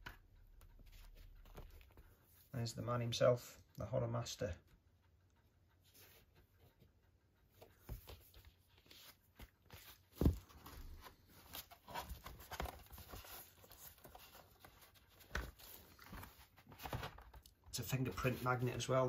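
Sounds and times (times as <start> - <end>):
cardboard sleeve rustling: 0.8 - 2.2, 7.6 - 19.0.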